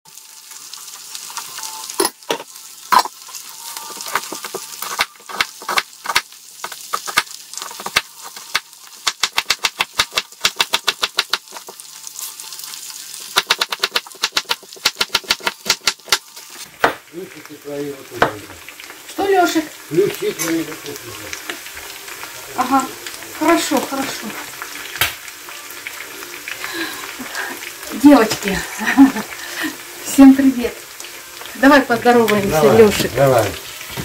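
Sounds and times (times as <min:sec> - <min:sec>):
frying hiss: 0:00.1 - 0:34.0
knife chopping on cutting board: 0:04.9 - 0:11.6, 0:13.4 - 0:16.2.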